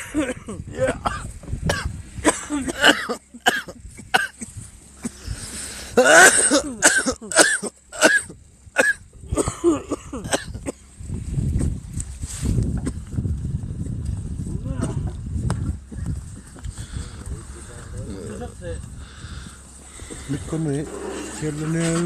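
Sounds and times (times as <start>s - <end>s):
person making throaty cough-like sounds: 0.0s - 5.2s, 5.9s - 10.8s.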